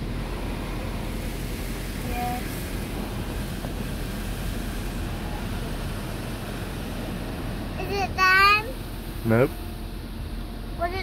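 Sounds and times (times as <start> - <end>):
muffled car wash machinery: 0.0 - 11.0.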